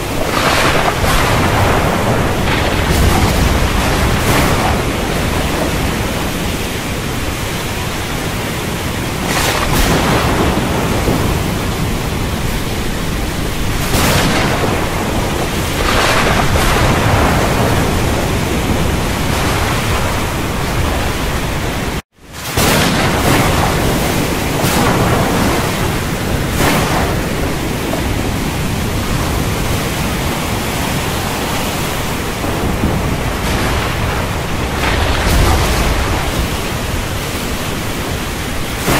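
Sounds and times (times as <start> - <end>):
thunderstorm noise: 0.0 - 38.9.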